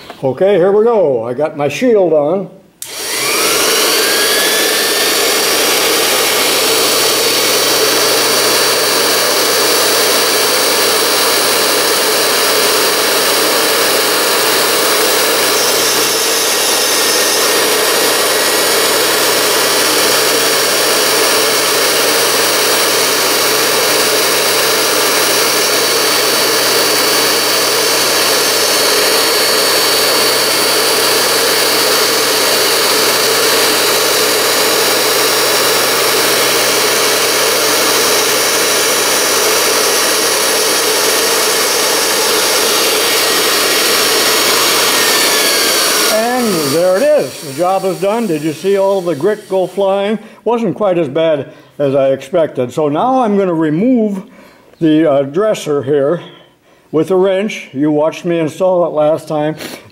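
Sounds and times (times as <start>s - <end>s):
grinder motor whine and hum: 2.8s - 50.2s.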